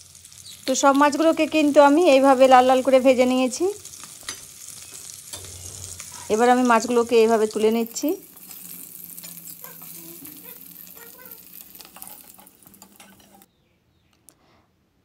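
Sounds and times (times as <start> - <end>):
fish sizzling in oil: 0.0 - 13.5
metal spatula scraping pan: 8.4 - 13.5.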